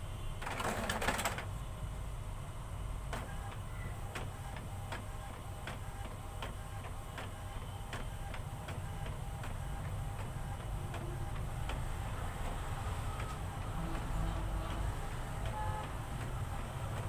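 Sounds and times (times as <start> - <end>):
scanner carriage ticks: 7.9 - 12.6.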